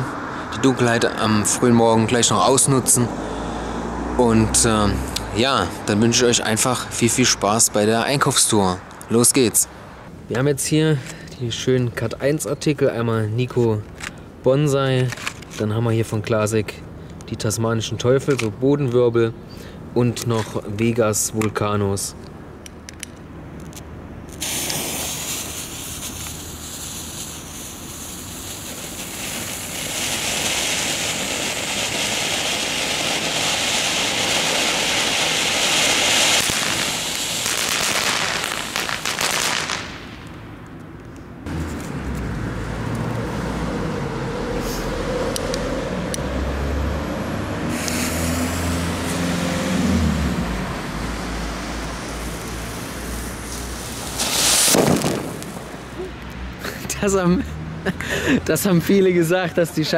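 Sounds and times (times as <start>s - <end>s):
firework fountain hissing: 24.3s - 40.3s, 47.6s - 56.8s.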